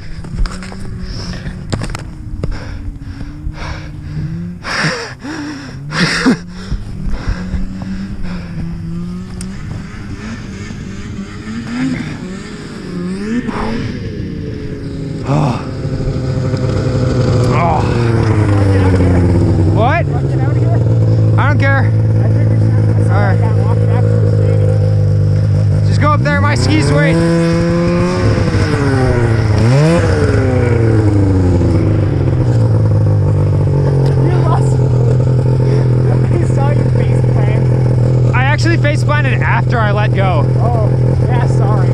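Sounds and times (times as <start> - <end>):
snowmobile engine running: 0.0 - 41.9.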